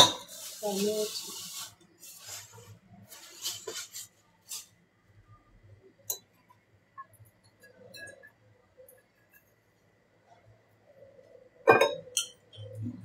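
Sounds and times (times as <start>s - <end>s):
kitchenware clinking and knocking: 0.0s - 0.4s, 11.6s - 13.0s.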